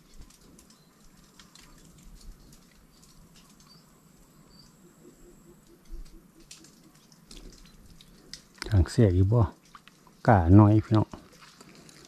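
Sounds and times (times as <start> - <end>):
small clicks and ticks: 0.0 - 10.3
high-pitched insect tone: 2.4 - 7.9
bird chirps: 3.6 - 7.0
soft low pulses: 4.1 - 6.9.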